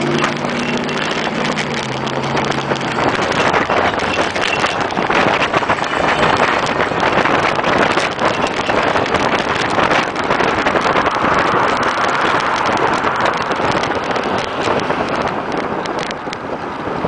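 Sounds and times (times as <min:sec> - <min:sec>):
sharp ticks: 0:00.0 - 0:16.4
road traffic noise: 0:00.0 - 0:17.0
wind rushing over microphone: 0:00.0 - 0:17.0.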